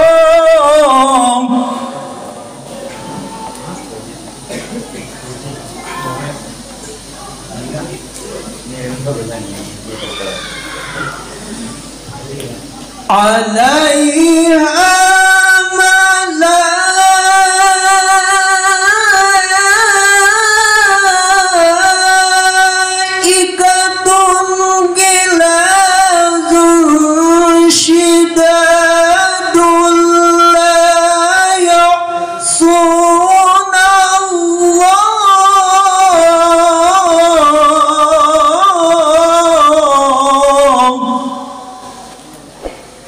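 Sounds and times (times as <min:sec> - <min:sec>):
man reciting melodically: 0:00.0 - 0:02.6, 0:13.0 - 0:42.1.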